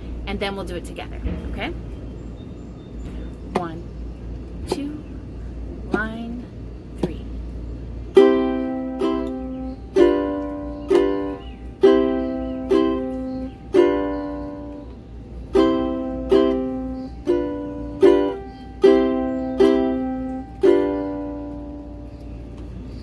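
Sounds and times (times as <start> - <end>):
ukulele strumming chords: 8.1 - 14.9, 15.5 - 22.1.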